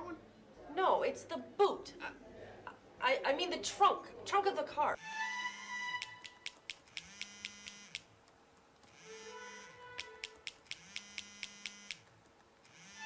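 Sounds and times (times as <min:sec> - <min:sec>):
phone ringing and vibrating: 0:06.0 - 0:08.0, 0:08.9 - 0:12.0
laptop keyboard typing: 0:06.0 - 0:12.5.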